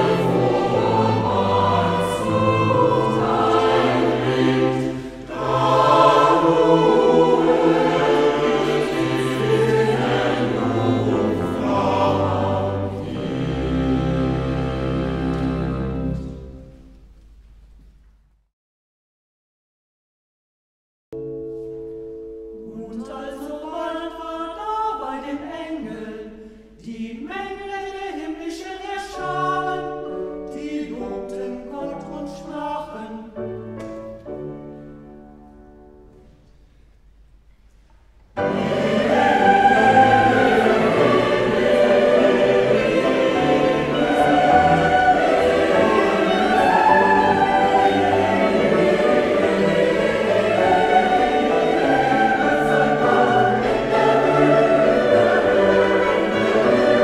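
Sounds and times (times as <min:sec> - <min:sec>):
choir singing: 0:00.0 - 0:16.9, 0:22.7 - 0:33.4, 0:38.4 - 0:57.0
slow held notes: 0:21.2 - 0:23.6.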